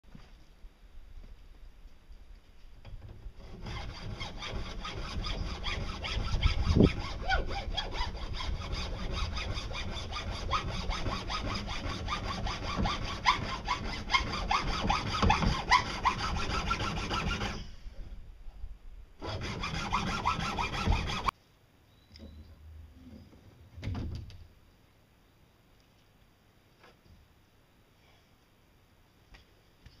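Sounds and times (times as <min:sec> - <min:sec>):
hand saw cutting pipe: 0:03.4 - 0:17.6, 0:19.2 - 0:21.3.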